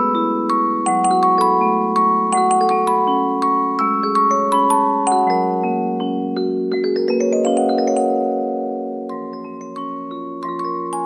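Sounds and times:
music box melody: 0:00.0 - 0:11.0.

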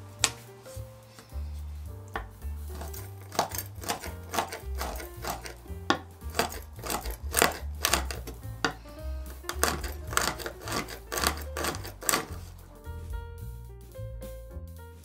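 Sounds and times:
background music: 0:00.0 - 0:15.0
knife chopping on wooden board: 0:02.2 - 0:08.8, 0:09.4 - 0:12.4.

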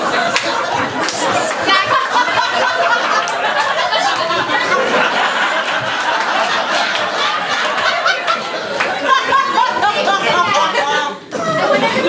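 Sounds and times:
audience laughing: 0:00.0 - 0:12.0
overlapping voices and shouts: 0:00.0 - 0:12.0.

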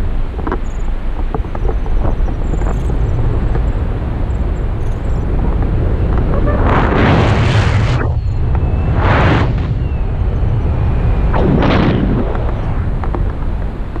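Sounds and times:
wind rushing over microphone: 0:00.0 - 0:14.0.

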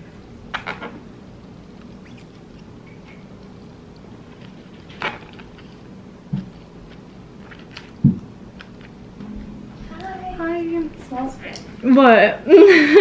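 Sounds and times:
steady low hum: 0:00.0 - 0:13.0
faint chewing: 0:01.4 - 0:08.0.

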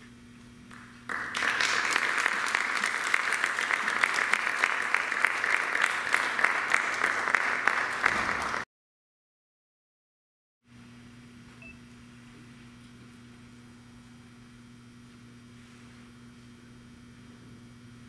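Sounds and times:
audience applause: 0:00.7 - 0:08.7.

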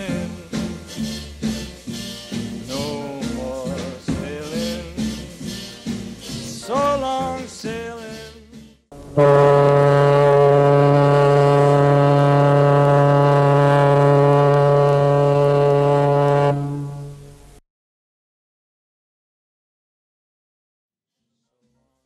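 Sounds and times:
person singing: 0:00.0 - 0:01.7, 0:02.6 - 0:08.6
ship's horn blast: 0:08.0 - 0:17.6.

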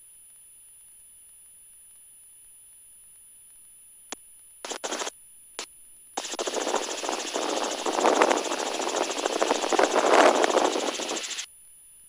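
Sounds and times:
helicopter engine and rotor: 0:04.7 - 0:05.1, 0:06.2 - 0:11.5.

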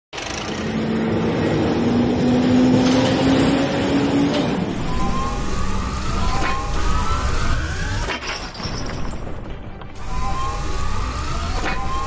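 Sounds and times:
rising machine whine: 0:00.2 - 0:08.2, 0:10.0 - 0:12.0
higher rising whine: 0:00.4 - 0:08.1.

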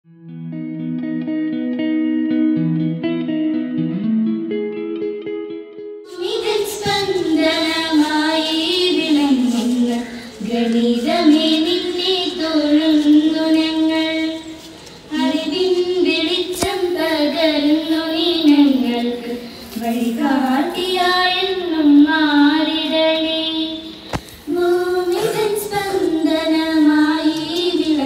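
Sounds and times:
girls singing in unison: 0:06.1 - 0:28.0.

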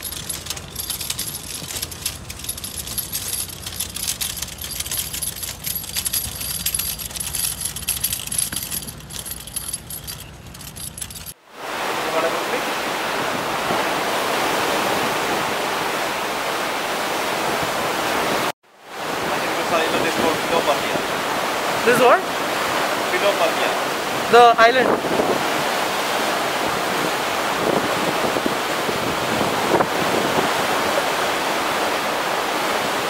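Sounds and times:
rattling clicks: 0:00.0 - 0:11.4
sea water rushing past hull: 0:11.4 - 0:33.0.

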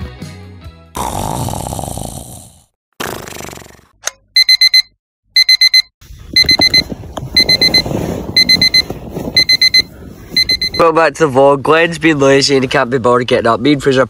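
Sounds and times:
electronic alarm beeping: 0:04.4 - 0:10.8.

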